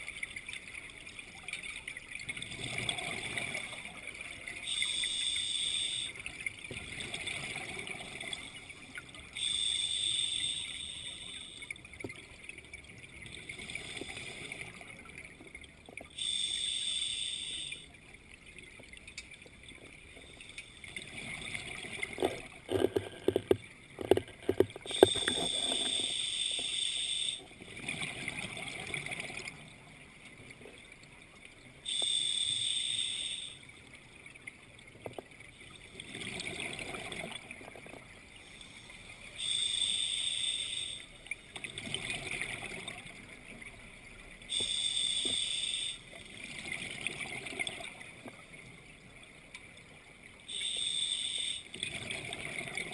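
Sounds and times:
exhaled bubbles gurgling: 2.2s - 16.5s, 19.6s - 30.9s, 35.0s - 38.4s, 39.2s - 48.6s, 51.4s - 52.9s
scuba regulator inhale hiss: 4.7s - 6.2s, 9.4s - 11.6s, 16.2s - 17.9s, 24.9s - 27.4s, 31.9s - 33.6s, 38.5s - 41.1s, 44.5s - 46.0s, 50.5s - 51.7s.

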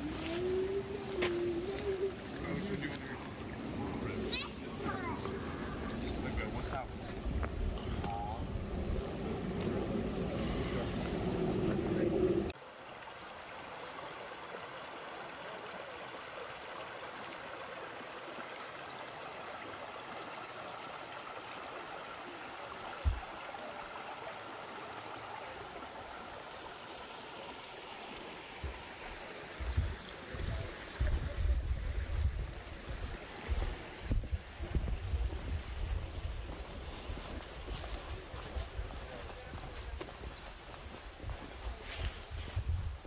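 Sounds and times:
stream running: 0.0s - 43.0s
wind buffeting microphone: 4.8s - 12.6s, 29.6s - 43.0s.

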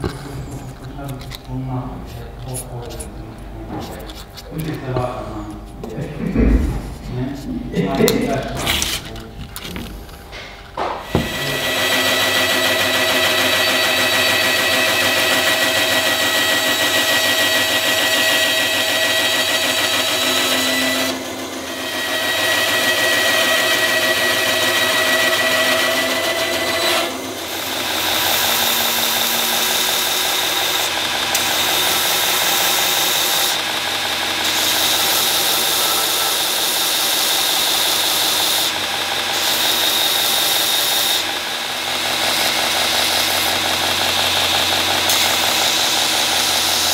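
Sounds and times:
bandsaw cutting: 7.8s - 9.9s, 10.8s - 46.9s
belt grinder whining: 10.8s - 46.9s.

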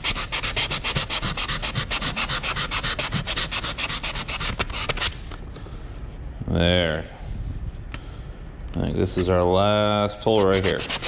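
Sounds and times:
sandpaper scrubbing wood: 0.0s - 5.1s, 10.2s - 11.0s.

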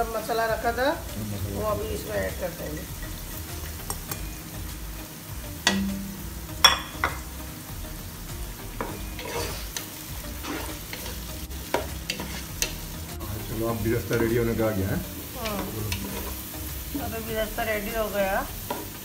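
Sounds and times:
onions sizzling in oil: 0.0s - 19.0s
wooden spatula stirring: 8.8s - 14.4s.

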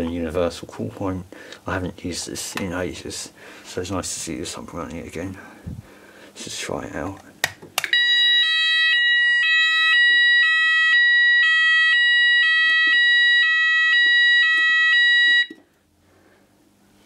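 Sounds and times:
fire alarm steady high tone: 7.9s - 15.6s
two-tone alarm signal: 8.0s - 15.6s.

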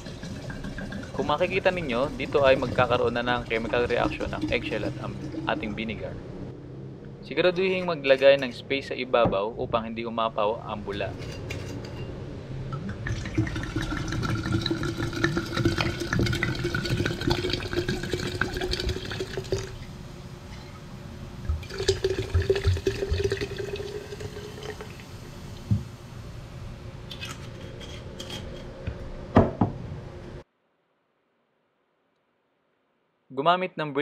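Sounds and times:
liquid pouring into glass jar: 0.0s - 6.1s, 12.8s - 19.8s, 21.5s - 25.1s.

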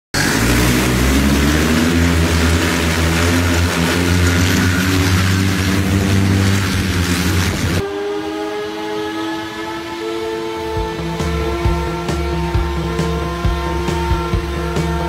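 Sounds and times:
hoverbike propellers buzzing: 0.2s - 15.0s.

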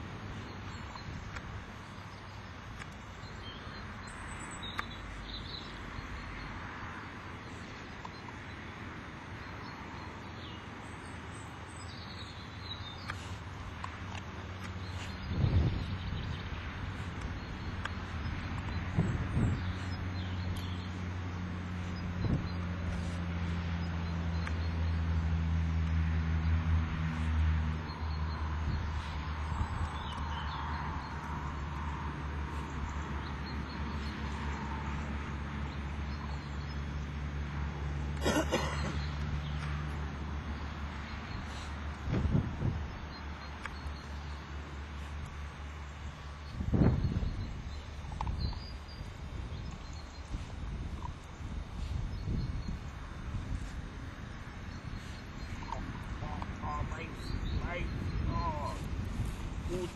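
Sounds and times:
outdoor field noise: 0.0s - 59.9s
bird chirps: 54.7s - 59.9s.

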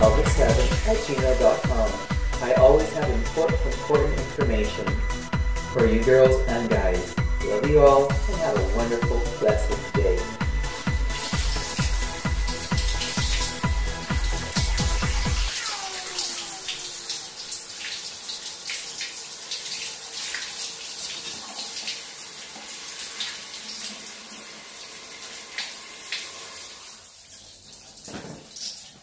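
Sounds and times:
shower spray splashing: 0.0s - 3.7s, 10.2s - 29.0s.

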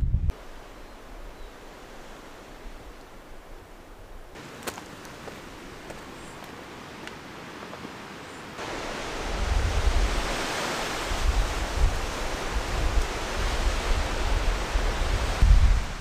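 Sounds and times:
wind gusting over microphone: 0.0s - 4.3s, 8.6s - 16.0s.

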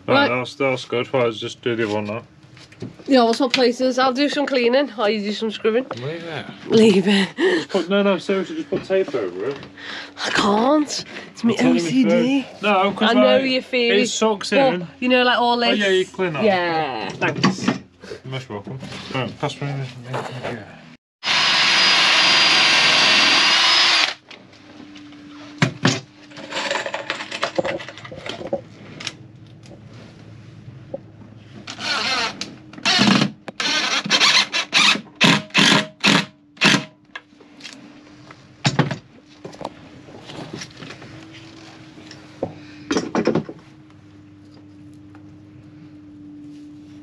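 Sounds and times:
steady low hum: 0.0s - 21.0s, 37.1s - 47.0s
drill driving screws into wood: 21.2s - 24.2s, 31.7s - 37.0s.

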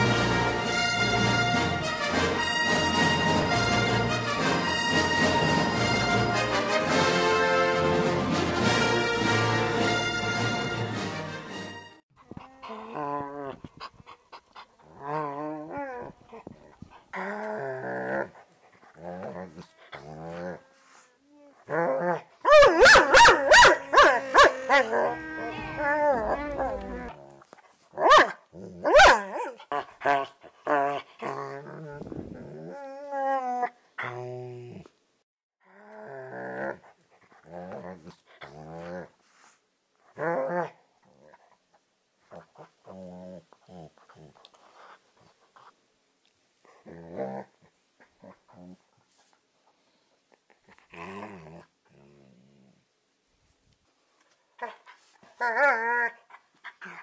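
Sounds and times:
dog moaning: 12.2s - 13.8s, 23.8s - 27.5s
animal warbling growl calls: 24.2s - 27.2s.

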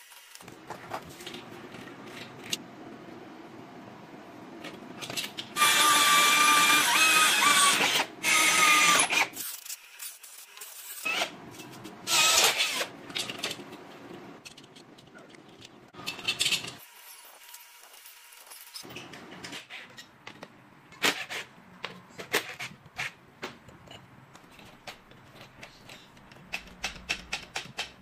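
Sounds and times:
electric drill boring steel: 5.6s - 9.4s.

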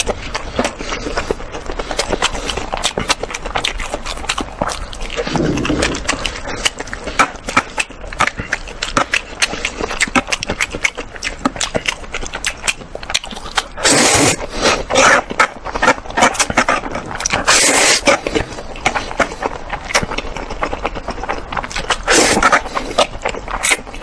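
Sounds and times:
wet chewing: 0.0s - 24.0s
slurping noodles: 0.4s - 10.2s, 13.6s - 20.0s, 21.7s - 24.0s.

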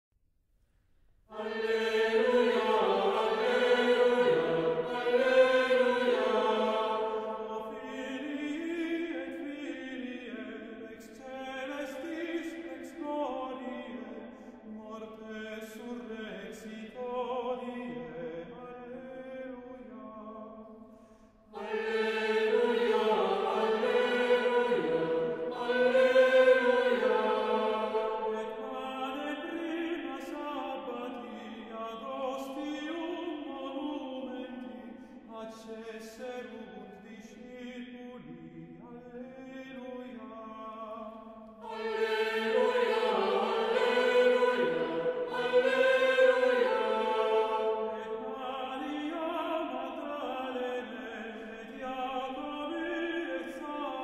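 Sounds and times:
monks chanting: 1.4s - 10.4s, 21.6s - 31.2s, 41.6s - 54.0s.

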